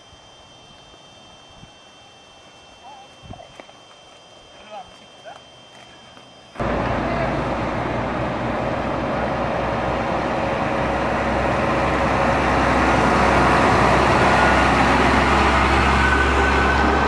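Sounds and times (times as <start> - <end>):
heavy truck driving past: 6.6 - 17.0
road noise: 6.6 - 17.0.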